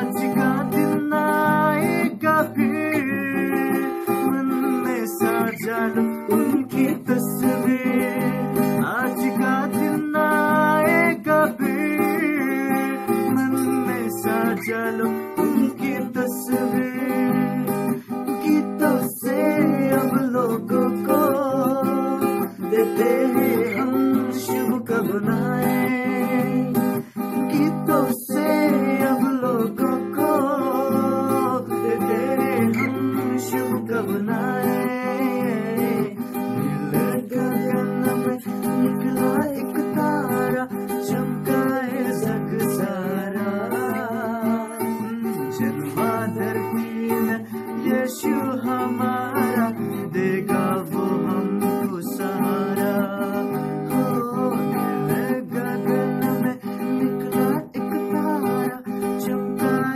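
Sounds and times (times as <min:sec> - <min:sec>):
acoustic guitar strumming chords: 0:00.0 - 0:59.9.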